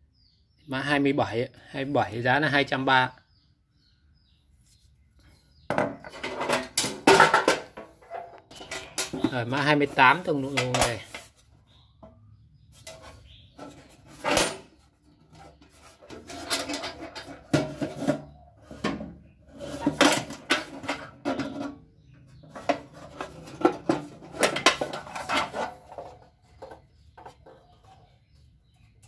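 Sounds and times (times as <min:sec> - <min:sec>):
toolbox knocking and clattering: 0:05.7 - 0:09.6, 0:16.1 - 0:21.8, 0:22.4 - 0:27.6.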